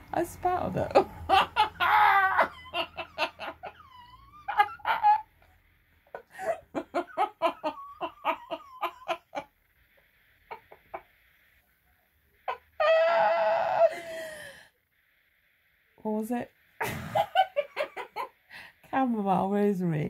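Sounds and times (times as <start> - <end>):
woman laughing: 0.6 - 5.5, 6.1 - 9.5, 12.5 - 14.6, 16.8 - 18.3
long high-pitched cry: 1.3 - 5.4, 12.5 - 14.6.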